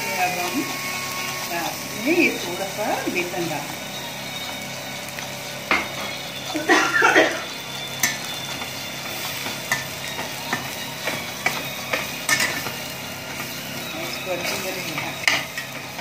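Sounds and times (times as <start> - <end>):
food sizzling in frying pan: 0.0 - 16.0
spoon scraping pan: 8.0 - 15.8
spoon clinking against pan: 9.0 - 12.8.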